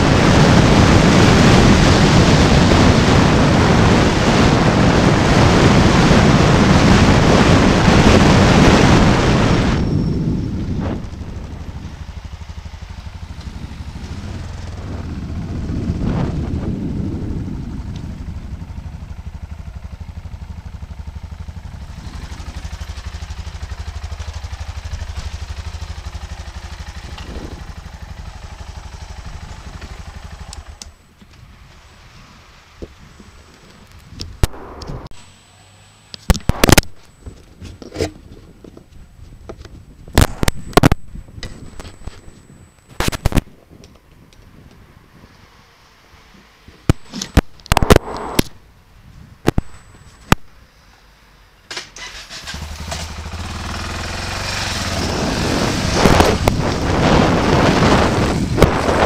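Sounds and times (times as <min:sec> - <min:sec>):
wind rush over microphone: 0:00.0 - 0:12.2, 0:13.0 - 0:19.5, 0:46.9 - 0:49.7, 0:54.3 - 0:59.0
motorcycle engine running slowly: 0:00.0 - 0:31.9, 0:52.4 - 0:59.0.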